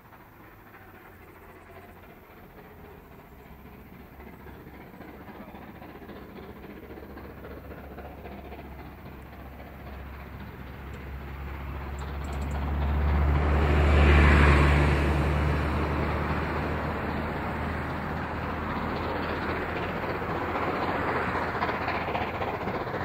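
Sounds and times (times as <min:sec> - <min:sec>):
vehicle engine passing: 0:08.8 - 0:22.4.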